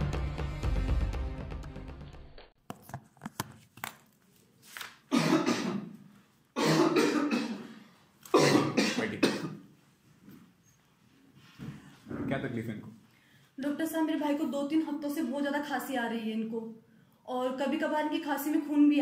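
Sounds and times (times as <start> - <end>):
man coughing: 5.1 - 5.9, 6.6 - 9.6.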